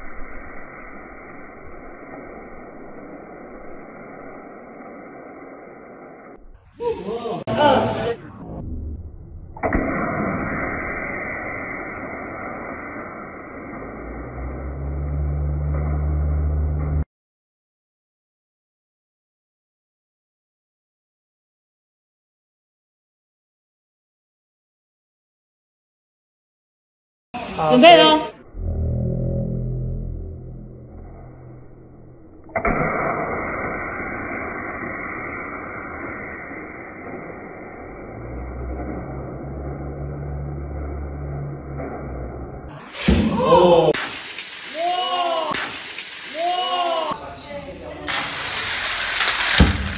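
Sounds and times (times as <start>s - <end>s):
sharp air release pop: 9.6s - 14.0s, 32.4s - 37.7s, 42.8s - 43.3s, 43.9s - 46.6s, 48.1s - 49.9s
compressed air rushing hiss: 48.1s - 49.9s.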